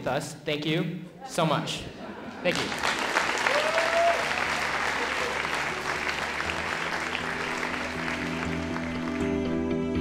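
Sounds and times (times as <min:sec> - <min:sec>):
audience applauding: 0:02.5 - 0:09.7
soft music: 0:04.3 - 0:10.0.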